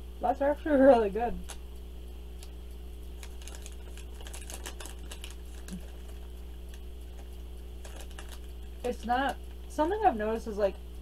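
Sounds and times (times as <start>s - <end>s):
low hum: 0.0s - 11.0s
chewing crunchy bar: 3.2s - 8.8s.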